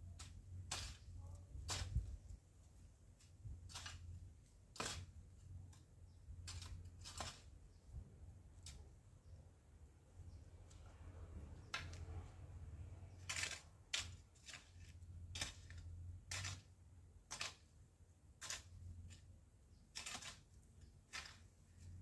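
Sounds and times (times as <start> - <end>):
hoe chopping into soil: 0.2 - 2.2, 3.6 - 5.2, 6.4 - 7.5, 13.1 - 17.7, 19.9 - 20.5.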